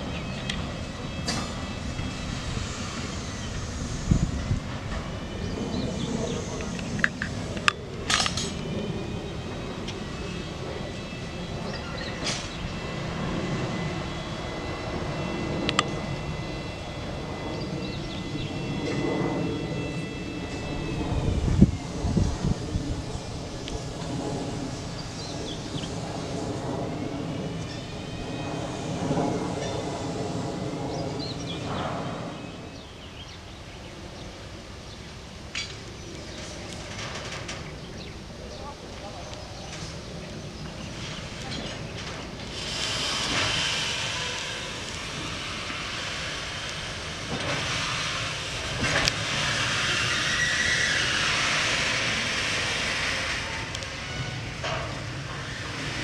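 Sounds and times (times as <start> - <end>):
low rumble: 0.0 - 34.4
birds chirping: 0.0 - 47.6
faint high whines: 0.0 - 56.0
locomotive engine drone: 0.0 - 56.0.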